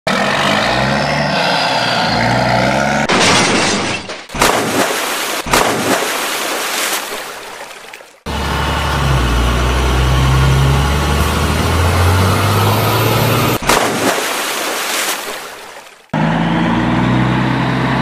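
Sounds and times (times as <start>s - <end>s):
toy trucks splashing into water: 3.1s - 8.3s, 13.6s - 16.1s
rush of splashing water: 4.4s - 8.3s, 13.6s - 16.1s.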